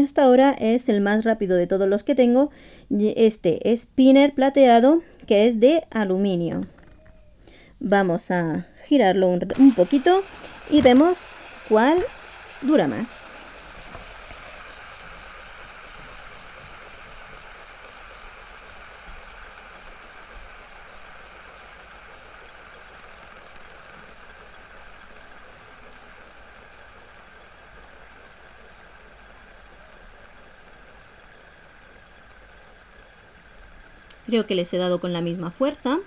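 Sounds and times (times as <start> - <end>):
fidget spinners whirring: 9.4 - 36.0.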